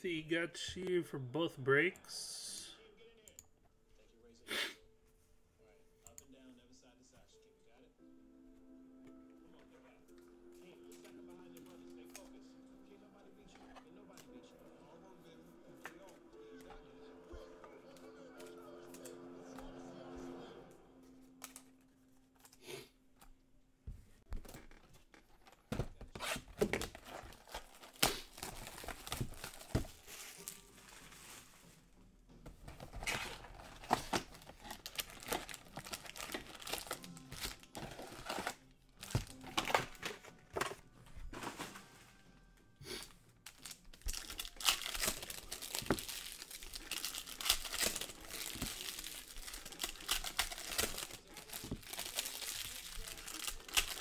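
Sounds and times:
plastic wrapping crinkling and tearing: 24.4s - 31.8s, 32.6s - 40.7s, 43.4s - 54.0s.

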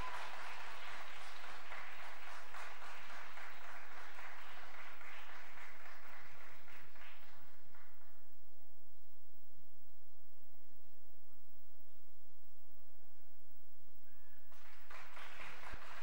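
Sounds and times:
audience applauding: 0.0s - 8.1s, 14.5s - 16.0s.

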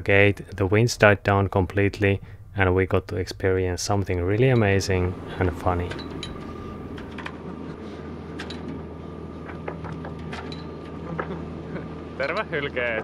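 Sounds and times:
boat engine humming: 1.9s - 13.0s.

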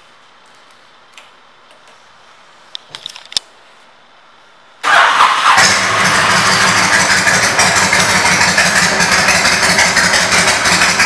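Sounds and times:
motorcycle engine starting and idling: 4.8s - 11.0s.

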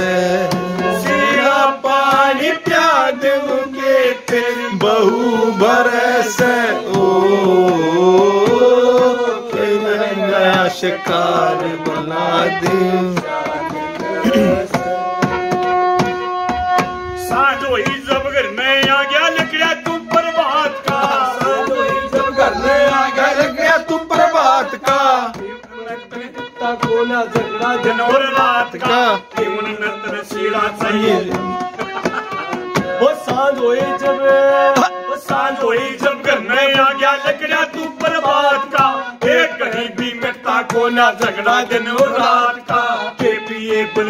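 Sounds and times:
harmonium melody: 0.0s - 44.0s
hands beating on wooden tabletop: 26.6s - 34.2s.

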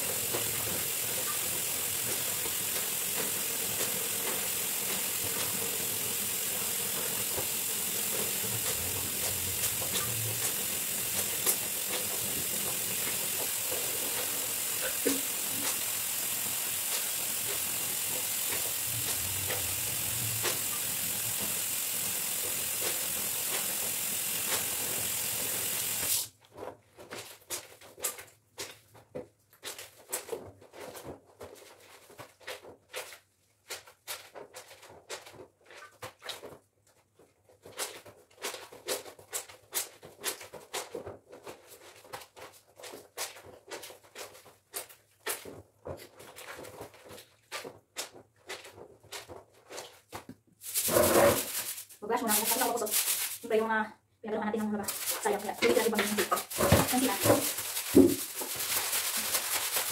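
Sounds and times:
steady hiss: 0.0s - 26.3s, 54.9s - 59.9s
wet fabric scrubbed by hand: 1.7s - 26.3s, 46.2s - 53.6s, 54.7s - 59.9s.

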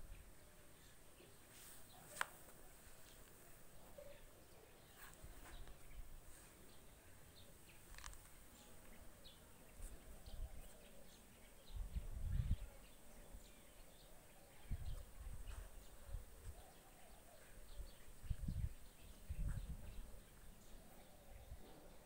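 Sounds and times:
faint bird chirps: 0.0s - 22.0s.

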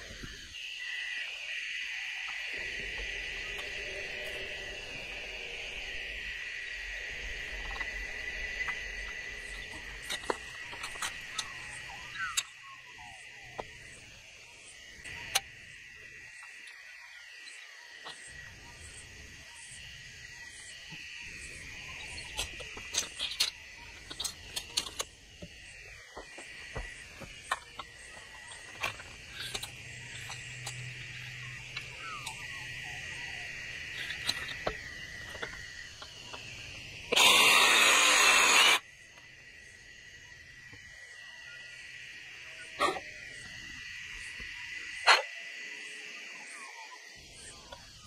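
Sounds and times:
crickets trilling: 0.0s - 48.0s
tools and plastic pipe clicking: 22.4s - 25.1s.

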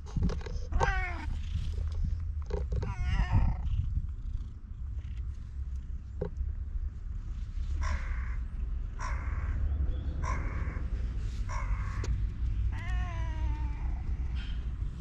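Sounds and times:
steady low rumble: 0.0s - 15.0s
cat meowing: 0.7s - 1.4s, 2.8s - 3.9s, 11.5s - 14.6s
crow cawing: 7.8s - 8.4s, 9.0s - 10.9s, 11.5s - 12.1s.

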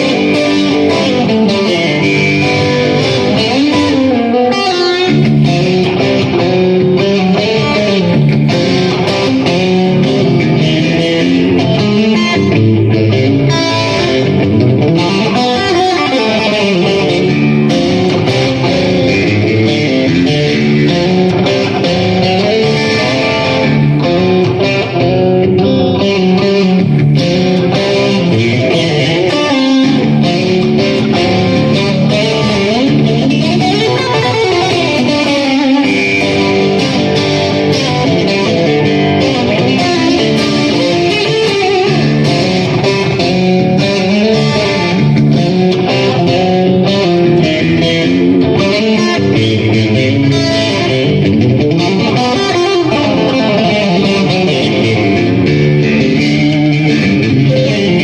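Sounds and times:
electric guitar playing: 0.0s - 58.0s.

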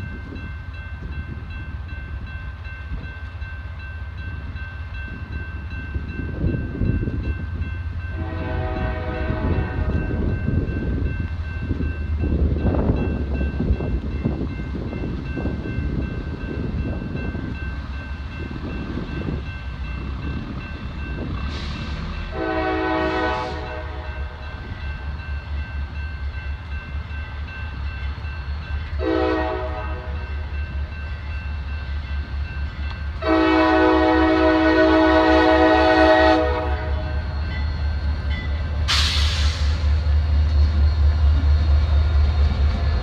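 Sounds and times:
crossing signal bell ringing: 0.0s - 38.9s
locomotive rumble: 0.0s - 43.0s
locomotive air horn blasts: 8.1s - 10.1s, 21.5s - 24.4s, 29.0s - 30.2s, 33.2s - 37.2s.

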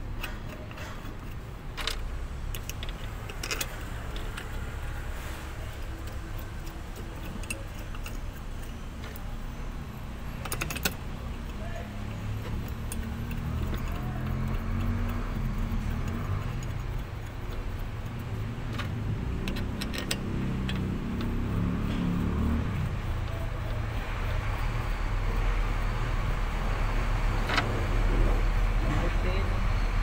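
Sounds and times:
light clicks of filter parts: 0.0s - 9.4s
diesel engine idling: 0.0s - 30.0s.

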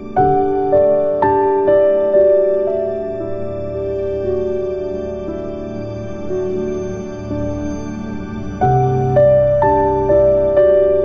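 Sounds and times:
gentle keyboard music: 0.0s - 11.0s.

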